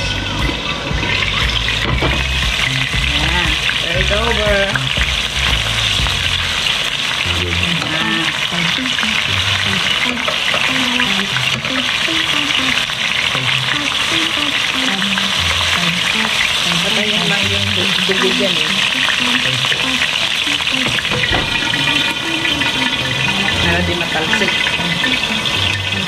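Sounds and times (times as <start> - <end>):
liver sizzling in frying pan: 1.0 - 26.0.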